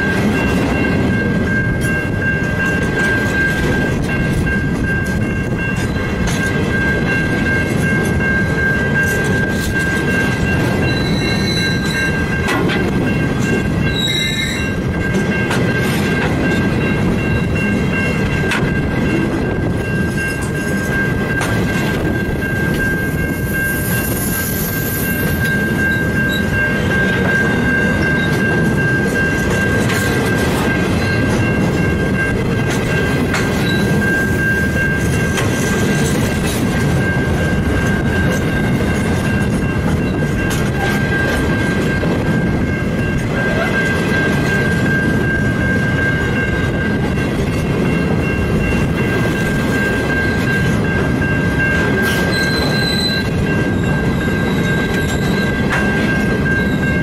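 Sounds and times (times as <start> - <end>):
train wheels rumbling on rail: 0.0 - 57.0
wheels squealing: 9.0 - 12.2, 13.8 - 14.8, 51.6 - 57.0.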